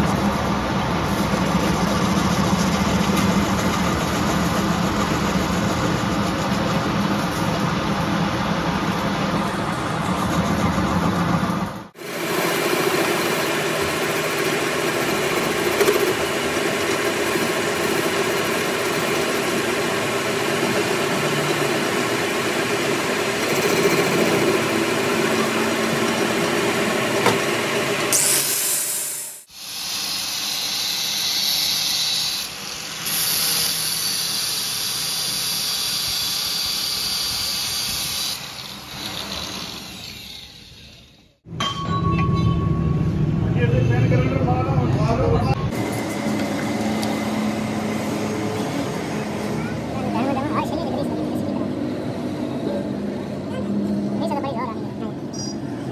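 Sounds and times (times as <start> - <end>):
metal lathe machining: 0.0 - 41.3, 45.7 - 50.2
cutting tool squealing: 28.1 - 41.2.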